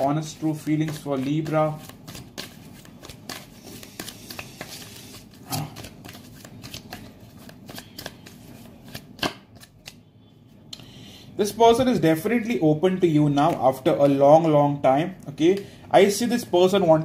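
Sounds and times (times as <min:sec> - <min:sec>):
cards being shuffled by hand: 0:00.0 - 0:10.0, 0:13.3 - 0:14.6.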